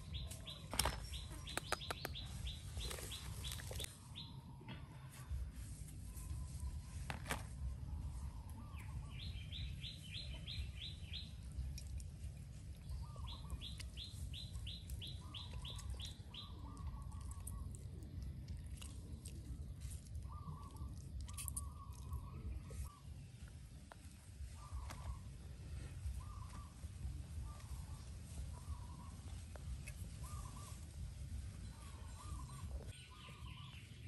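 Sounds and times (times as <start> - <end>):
low chattering bird call: 0.0 - 4.8
steady low rumble: 7.6 - 34.0.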